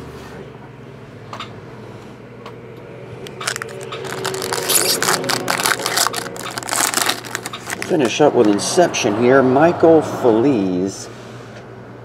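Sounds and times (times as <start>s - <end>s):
foil wrapper crinkling and tearing: 3.3s - 8.6s.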